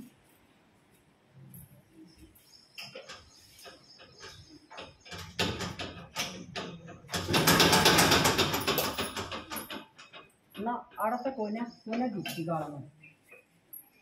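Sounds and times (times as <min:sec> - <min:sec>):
metal gate latch rattling: 0:02.8 - 0:11.3.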